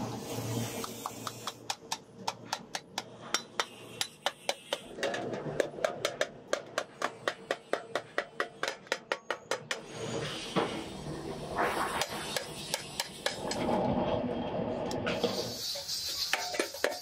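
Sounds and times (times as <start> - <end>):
hammer beating metal bucket: 16.2 - 17.0.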